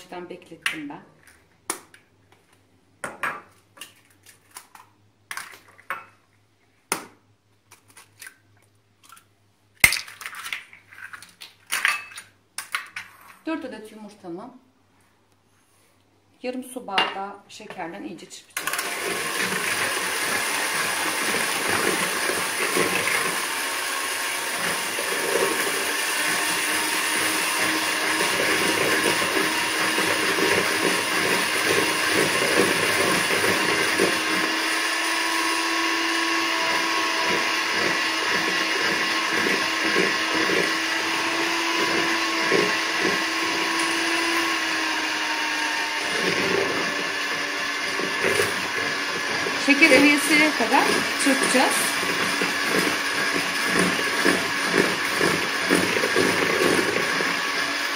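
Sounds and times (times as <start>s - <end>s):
electric hand mixer whisking: 18.6s - 57.9s.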